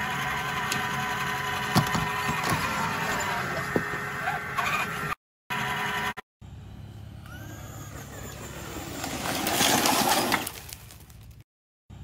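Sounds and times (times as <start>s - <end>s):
rc truck electric motor whining: 0.0s - 6.2s, 6.9s - 10.4s
tyres crunching gravel: 8.1s - 11.4s.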